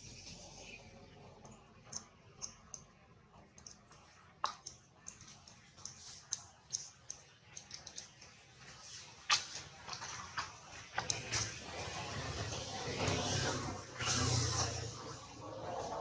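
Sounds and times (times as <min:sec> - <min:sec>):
faint high-pitched clicks: 0:03.5 - 0:08.4.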